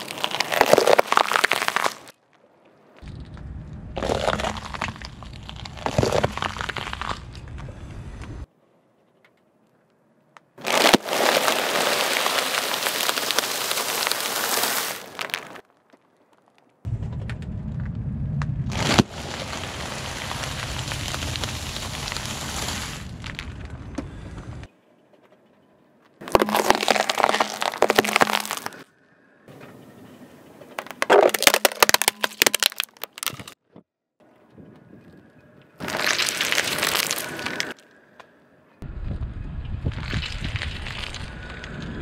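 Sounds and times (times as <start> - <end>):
snacks crunching and plastic crinkling: 0.0 - 3.4, 4.0 - 7.7, 10.6 - 16.8, 18.7 - 23.8, 26.2 - 28.9, 30.8 - 33.6, 35.8 - 37.9, 39.9 - 41.7
sharp crack of bag bursting: 10.6 - 15.6, 18.7 - 23.5
plastic container cracking: 10.6 - 16.7, 26.2 - 28.8, 30.8 - 33.6.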